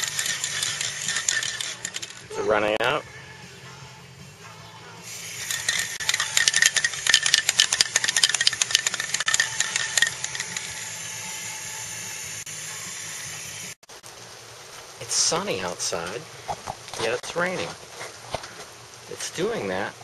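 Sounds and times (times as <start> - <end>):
paint sprayer hissing: 0.0 - 2.2, 5.0 - 13.8
rapid clicks: 0.0 - 2.2, 5.4 - 10.8.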